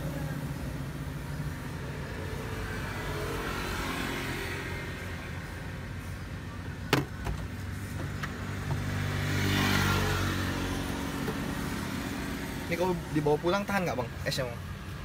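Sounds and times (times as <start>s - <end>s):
vehicle engine passing: 7.7s - 13.3s.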